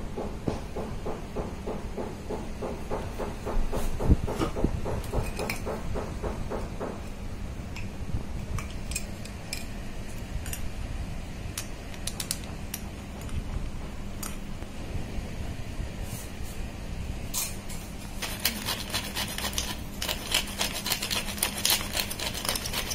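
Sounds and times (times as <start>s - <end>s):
fork mashing potatoes in a pot: 18.0s - 22.9s.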